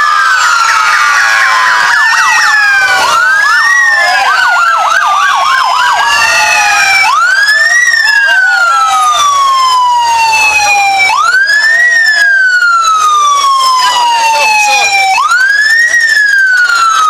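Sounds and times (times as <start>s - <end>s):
police sirens wailing: 0.0s - 17.0s
siren yelp warbling: 0.0s - 17.0s.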